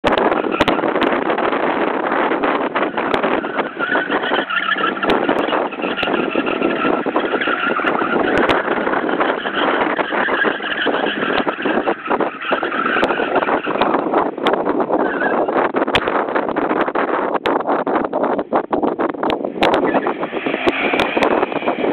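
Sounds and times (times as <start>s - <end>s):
car engine at high revs: 0.0s - 16.1s, 19.2s - 21.9s
tyres squealing: 2.2s - 15.6s, 19.6s - 21.9s.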